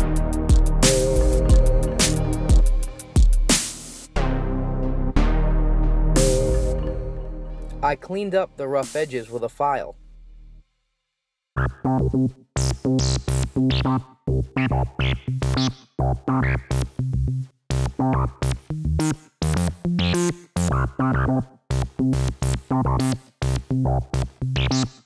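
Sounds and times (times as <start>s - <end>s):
electronic synthesizer music: 0.0s - 10.4s.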